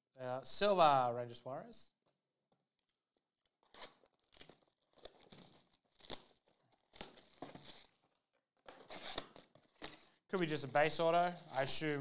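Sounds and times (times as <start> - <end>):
packaging crinkling and tearing: 3.4 - 12.0
foil packs rustling: 3.8 - 12.0.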